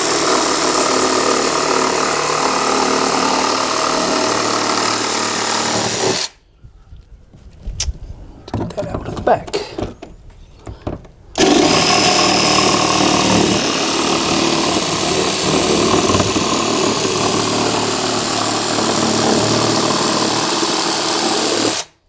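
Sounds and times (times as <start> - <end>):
jigsaw cutting plastic: 0.0 - 6.4, 11.4 - 22.0.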